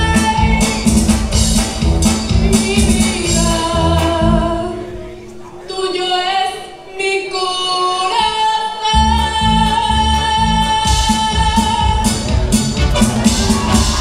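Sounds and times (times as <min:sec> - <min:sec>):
woman singing into microphone: 0:00.0 - 0:01.0, 0:02.3 - 0:12.3
bass beat: 0:00.0 - 0:04.6, 0:09.0 - 0:14.0
amplified music: 0:00.0 - 0:05.2, 0:09.0 - 0:14.0.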